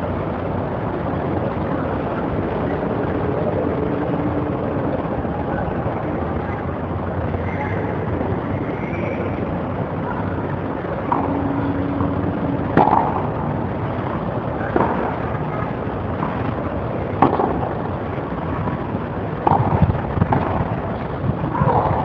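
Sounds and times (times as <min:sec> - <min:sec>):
steady background hiss: 0:00.0 - 0:22.0
tennis ball struck by racket: 0:12.7 - 0:13.3, 0:14.6 - 0:15.3, 0:17.2 - 0:17.7.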